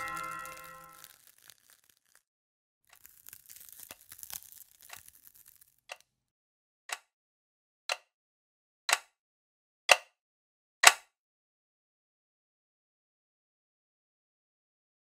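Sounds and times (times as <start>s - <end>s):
sparkly crackling hiss: 0.0s - 2.2s, 3.0s - 5.9s.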